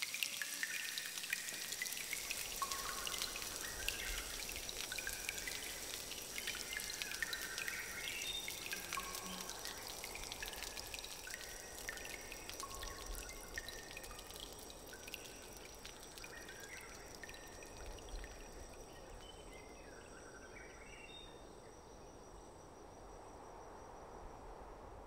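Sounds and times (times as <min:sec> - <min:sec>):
running water: 0:00.0 - 0:19.6
faint high insect-like tones: 0:00.0 - 0:25.0.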